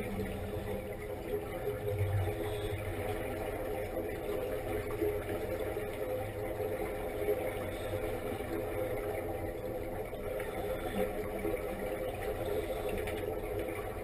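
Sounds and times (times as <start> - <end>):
underwater mechanical hum: 0.0 - 14.0
low rumble: 1.7 - 3.3.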